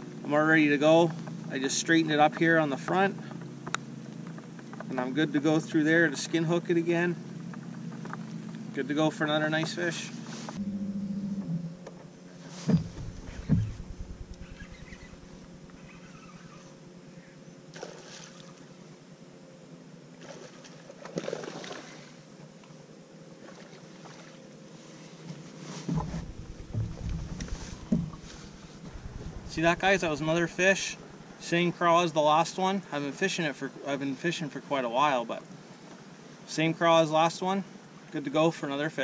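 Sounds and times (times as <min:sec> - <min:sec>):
boat motor humming: 0:10.4 - 0:17.2, 0:25.9 - 0:31.4
sharp knocks: 0:12.7 - 0:15.1, 0:26.0 - 0:30.3.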